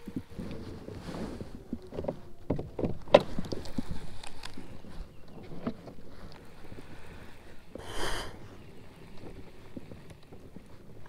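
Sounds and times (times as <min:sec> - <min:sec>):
fishing gear clunking in kayak: 0:01.8 - 0:04.6.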